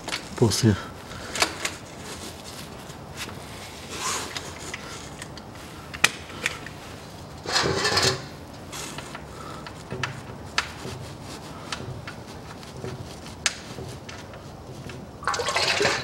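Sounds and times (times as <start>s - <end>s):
drain plug rattling scrape: 7.4s - 8.4s.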